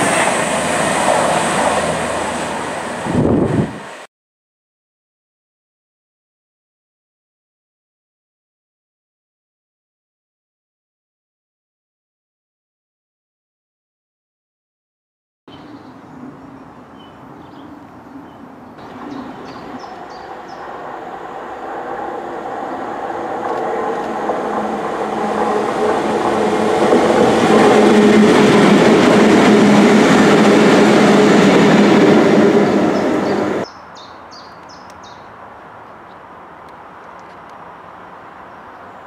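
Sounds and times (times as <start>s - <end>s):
diesel locomotives passing: 0.0s - 4.1s, 15.5s - 34.0s, 34.9s - 39.0s.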